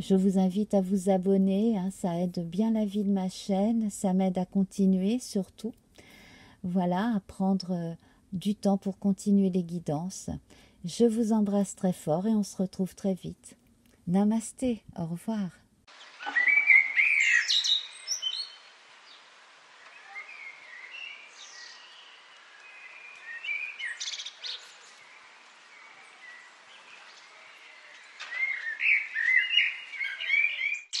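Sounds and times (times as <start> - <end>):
birds chirping and singing: 16.0 - 31.0.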